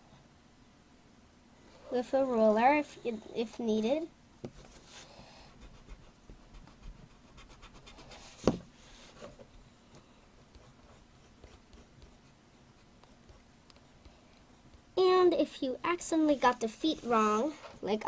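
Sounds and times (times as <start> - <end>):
pencil scratching on paper: 4.5 - 9.2, 10.4 - 15.2.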